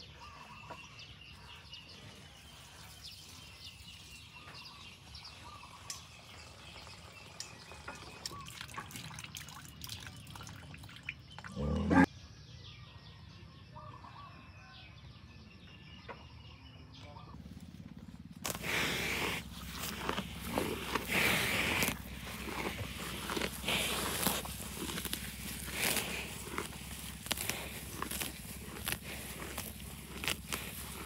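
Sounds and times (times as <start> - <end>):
faint birdsong: 0.0 - 31.0
wet clicks and drips: 7.4 - 11.5.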